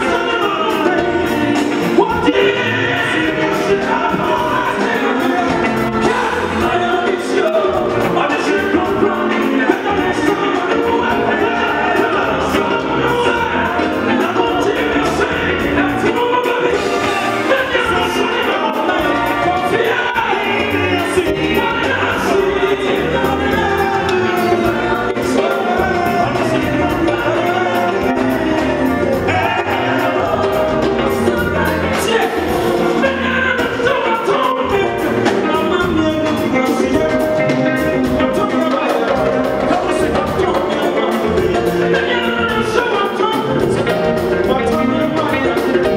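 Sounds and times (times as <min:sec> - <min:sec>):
drum kit beat: 0:00.0 - 0:45.9
electric guitar: 0:00.0 - 0:45.9
men singing gospel song: 0:00.0 - 0:45.9.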